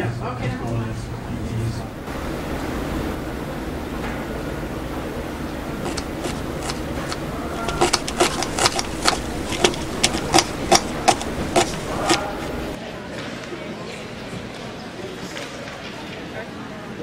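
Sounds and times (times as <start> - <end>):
background hum: 0.4 - 12.8
sharp taps: 5.8 - 12.8.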